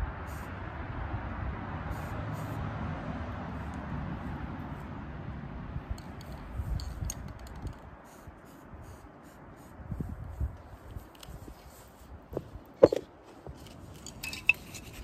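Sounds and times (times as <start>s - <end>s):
spray paint can hissing: 0.2s - 0.5s, 1.9s - 2.6s, 6.1s - 9.8s
spray can clicks and rattles: 6.0s - 8.2s.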